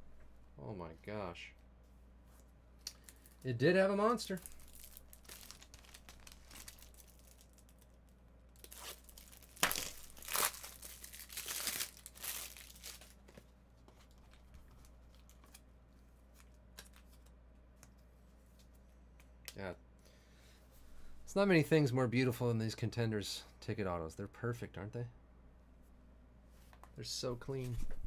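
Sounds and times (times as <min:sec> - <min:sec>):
wrappers tearing and crinkling: 0:04.2 - 0:07.9, 0:08.6 - 0:13.2.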